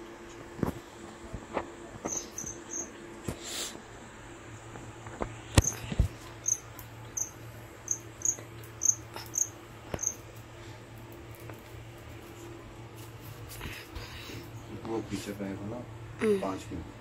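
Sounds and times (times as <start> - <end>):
steady low hum: 0.0 - 17.0
cricket chirping: 2.1 - 2.9, 5.6 - 10.3.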